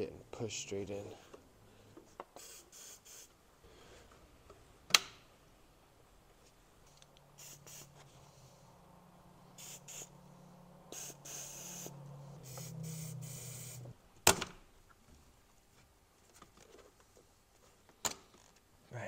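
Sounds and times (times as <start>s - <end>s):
aerosol spray hissing: 2.4s - 3.3s, 7.4s - 8.0s, 9.6s - 10.2s, 10.9s - 13.9s.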